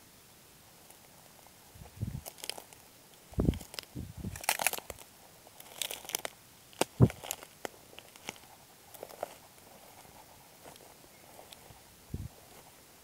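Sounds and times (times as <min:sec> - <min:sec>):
footsteps through tall grass: 0:08.2 - 0:12.8.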